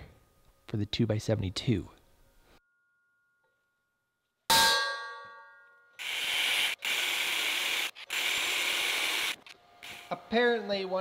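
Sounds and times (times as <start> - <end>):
cordless drill drilling steel: 6.0 - 10.1.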